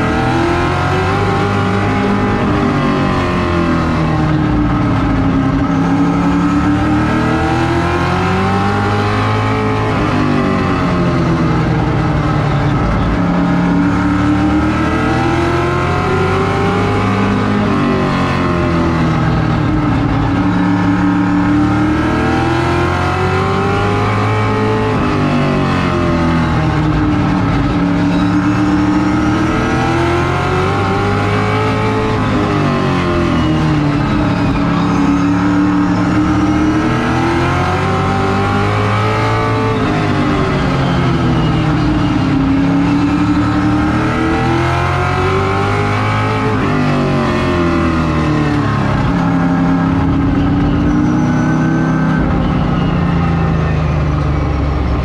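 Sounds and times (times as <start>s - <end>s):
race car engine accelerating: 0.0s - 55.0s.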